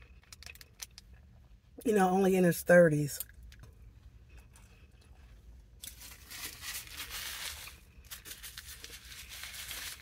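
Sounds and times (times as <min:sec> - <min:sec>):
paper bag crinkling and rustling: 0:05.8 - 0:10.0.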